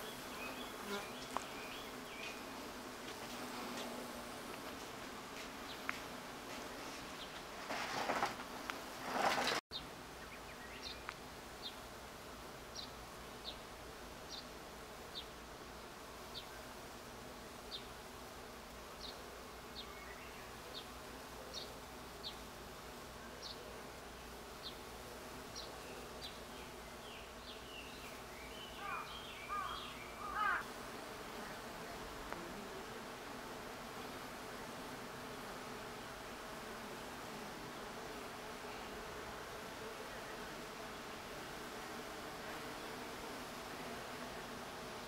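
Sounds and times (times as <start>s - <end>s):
bees buzzing: 0.0s - 45.0s
bird chirping: 26.2s - 30.6s.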